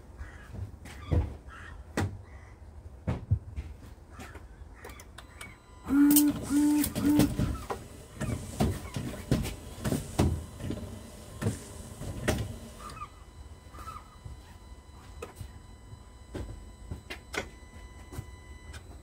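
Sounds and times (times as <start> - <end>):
short beeps: 5.2 - 7.4, 12.8 - 19.0
windscreen wipers sweeping: 6.3 - 13.0.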